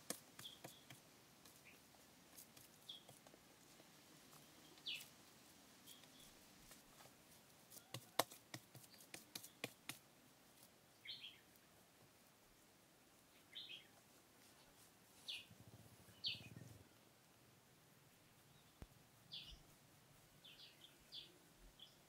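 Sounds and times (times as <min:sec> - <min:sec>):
short bird chirps: 0:16.1 - 0:16.8.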